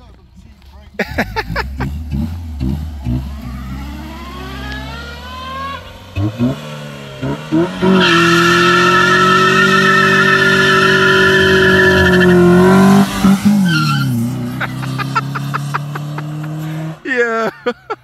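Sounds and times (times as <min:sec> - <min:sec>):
car engine revving: 0:01.1 - 0:17.1
tyres squealing: 0:07.7 - 0:15.6.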